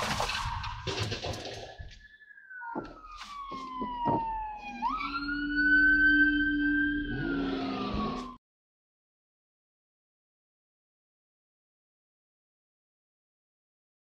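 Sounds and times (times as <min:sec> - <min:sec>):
police siren wailing: 0:02.0 - 0:08.4.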